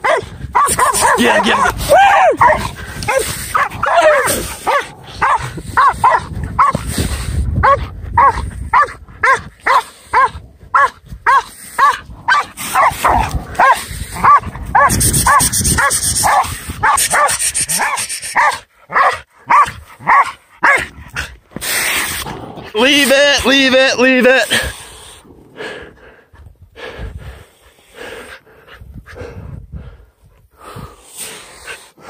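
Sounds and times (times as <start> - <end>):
dog yapping barks: 0.0 - 1.7, 2.4 - 6.8, 7.6 - 20.9.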